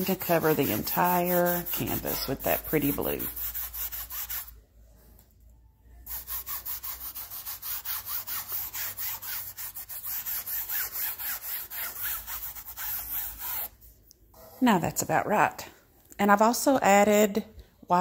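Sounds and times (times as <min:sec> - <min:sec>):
foam brush scrubbing canvas: 0:00.0 - 0:04.5.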